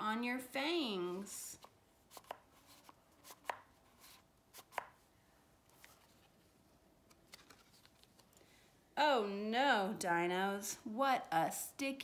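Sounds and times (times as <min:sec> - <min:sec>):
cardboard book pages turning: 0:01.6 - 0:05.0, 0:05.7 - 0:08.4.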